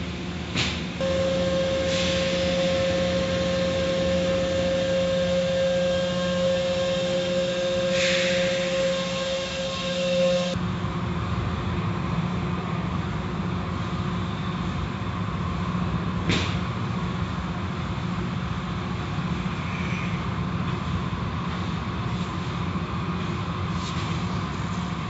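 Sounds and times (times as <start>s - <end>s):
car wash machine hum: 0.0s - 10.6s
whining tone: 1.0s - 10.6s
water spray hiss: 8.0s - 8.4s.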